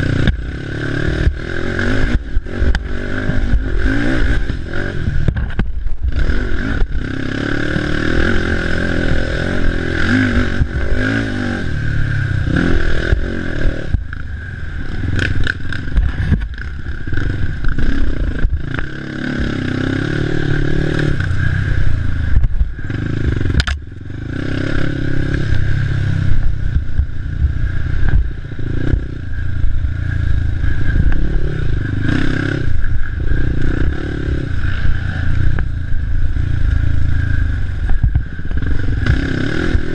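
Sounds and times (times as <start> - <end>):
clatter and scraping over ground: 0.0 - 11.2, 15.1 - 19.6
quad bike engine revving: 0.0 - 39.9.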